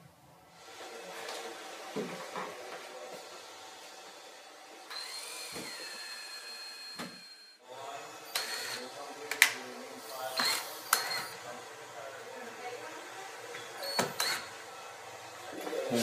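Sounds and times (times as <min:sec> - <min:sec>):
cordless drill whining: 0:00.5 - 0:15.6.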